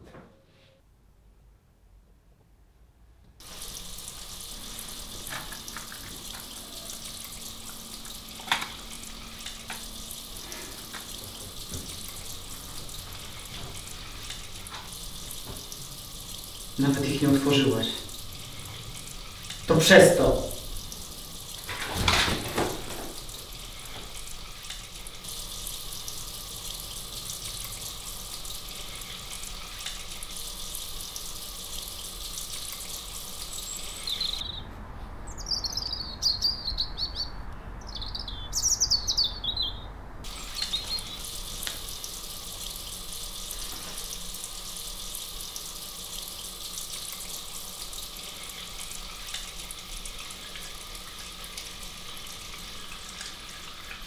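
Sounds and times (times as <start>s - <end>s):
tap running into sink: 3.4s - 17.5s, 20.8s - 25.0s
birds chirping: 33.3s - 41.4s.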